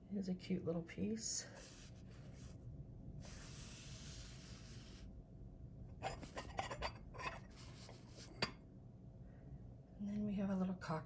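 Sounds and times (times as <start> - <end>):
ceramic dish scraping: 6.0 - 8.6.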